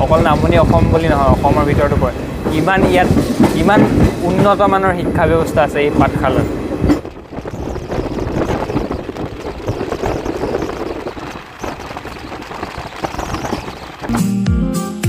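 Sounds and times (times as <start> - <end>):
train wheels clattering on rails: 0.0 - 14.1
steady rush of train noise: 0.0 - 14.2
guitar music: 14.1 - 15.0.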